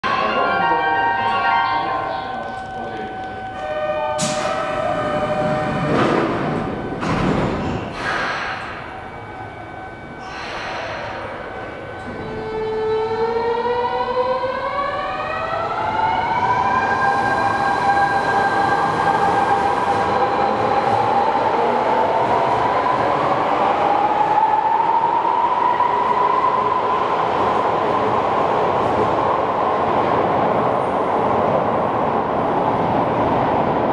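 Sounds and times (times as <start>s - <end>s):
loud hissing of doors closing: 7.1s - 8.8s.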